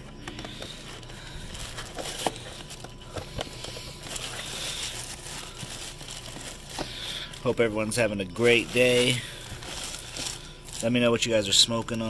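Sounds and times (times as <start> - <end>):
plastic bag crinkling: 0.4 - 12.0.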